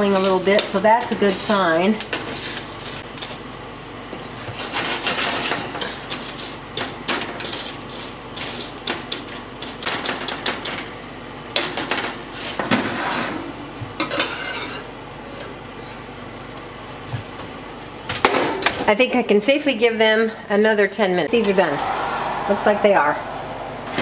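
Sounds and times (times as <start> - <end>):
metal spatula scraping a sheet pan: 14.2 - 14.8.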